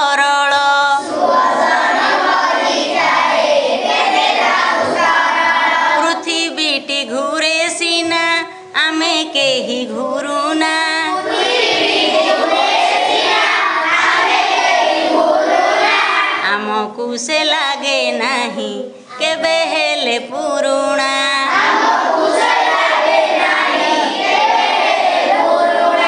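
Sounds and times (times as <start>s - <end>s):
children singing in chorus: 0.9s - 6.6s, 9.6s - 16.7s, 19.1s - 26.0s.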